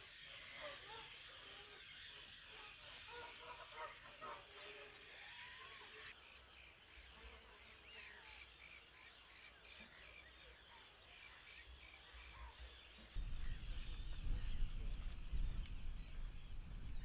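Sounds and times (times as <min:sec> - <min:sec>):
faint birds calling: 0:00.0 - 0:17.0
light wind: 0:11.7 - 0:17.0
wind rumble on microphone: 0:13.2 - 0:17.0.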